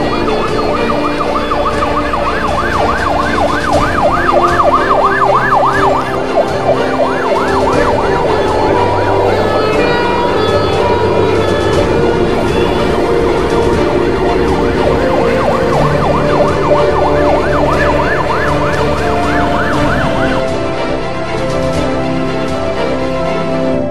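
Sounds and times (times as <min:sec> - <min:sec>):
siren wailing: 0:00.0 - 0:20.5
background music: 0:00.0 - 0:23.9.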